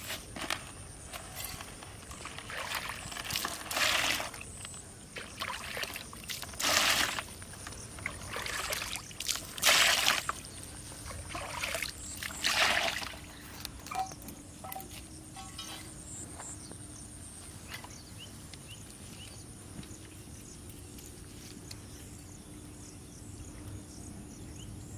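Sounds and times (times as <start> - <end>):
water splashing into pond: 2.1 - 15.7.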